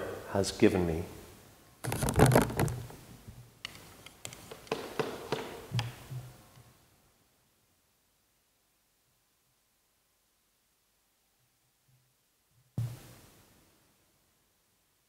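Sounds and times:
soft knock and rustle: 12.8s - 13.1s.

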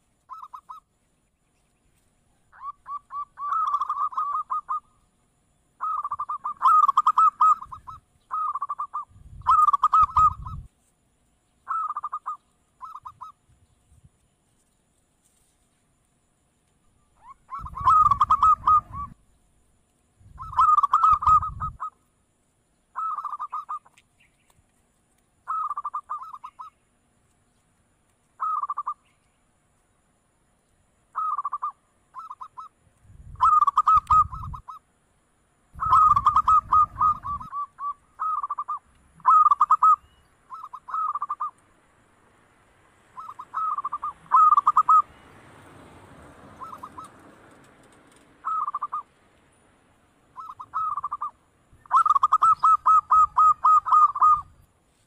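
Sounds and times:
dove cooing: 0.3s - 0.8s, 2.5s - 4.9s, 5.8s - 10.7s, 11.7s - 13.3s, 17.2s - 19.2s, 20.4s - 22.0s, 23.0s - 23.8s, 31.2s - 32.7s, 33.4s - 34.8s, 35.8s - 41.5s, 43.2s - 45.1s, 46.5s - 47.2s, 48.4s - 49.1s, 50.4s - 54.5s.

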